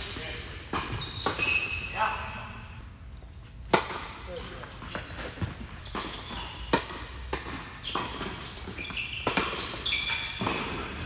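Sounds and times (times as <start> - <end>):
tennis ball struck and bouncing: 3.7 - 4.2, 4.9 - 11.0.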